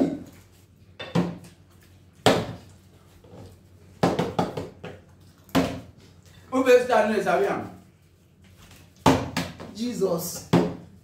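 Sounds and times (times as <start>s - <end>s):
plastic bottle thudding on wood: 9.0s - 9.7s.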